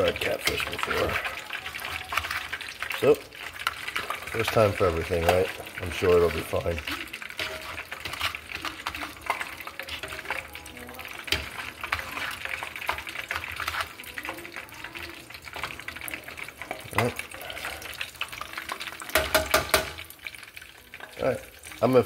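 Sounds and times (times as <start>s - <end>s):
metal tongs clicking and scraping: 0.0s - 14.6s
fish frying in hot oil: 0.0s - 22.0s.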